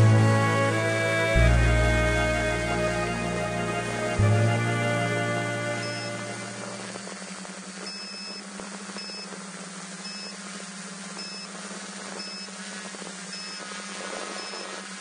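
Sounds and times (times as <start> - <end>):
drone propellers buzzing: 0.0 - 7.3.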